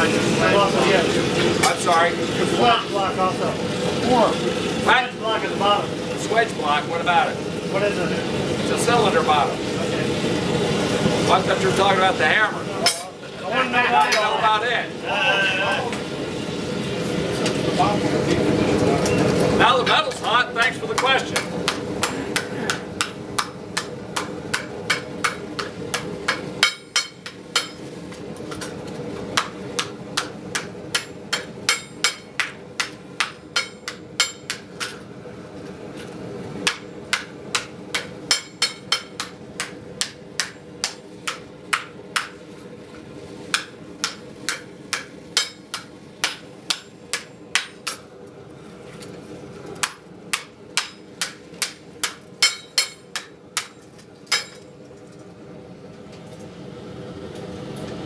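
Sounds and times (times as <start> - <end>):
hammer ringing on hot metal: 19.8 - 28.7, 29.3 - 35.0, 36.6 - 42.4, 43.5 - 48.0, 49.8 - 54.7.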